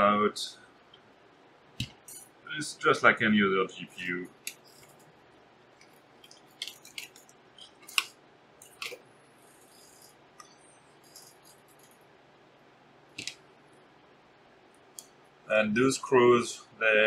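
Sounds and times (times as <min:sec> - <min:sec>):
screwdriver clicks and metal taps: 0:06.3 - 0:09.0.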